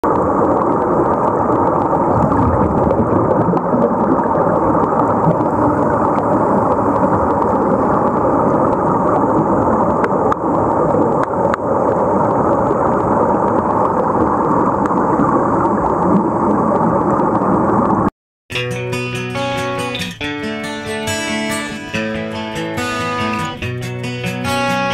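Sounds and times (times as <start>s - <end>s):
underwater air bubbling: 0.0s - 18.1s.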